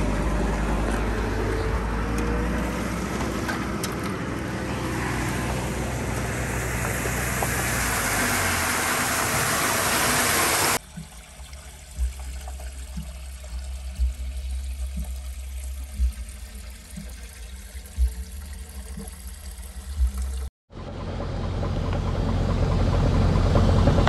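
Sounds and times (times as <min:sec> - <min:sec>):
water gushing from a hose: 0:02.4 - 0:03.8, 0:04.4 - 0:20.5.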